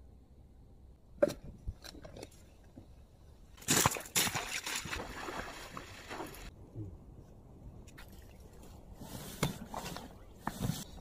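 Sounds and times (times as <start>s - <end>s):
boots splashing through water: 3.6s - 6.5s.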